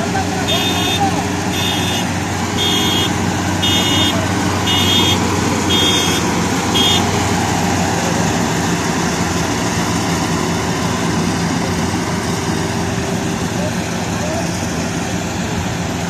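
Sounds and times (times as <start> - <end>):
combine harvester engine running: 0.0 - 16.0
electronic warning beeper: 2.6 - 6.2.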